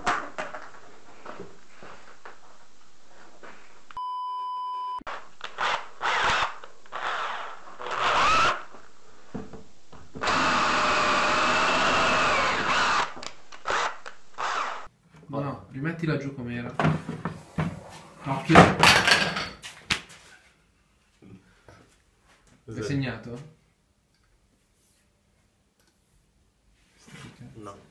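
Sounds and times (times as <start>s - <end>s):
censor bleep: 4.0s - 5.1s
cordless drill running: 5.4s - 8.8s, 10.2s - 14.9s.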